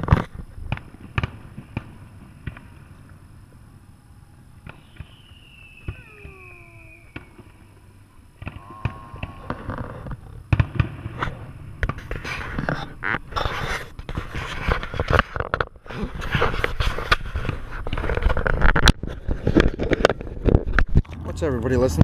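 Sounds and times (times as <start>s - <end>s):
fireworks bangs: 0.0s - 20.9s
falling firework whistle: 3.8s - 12.4s.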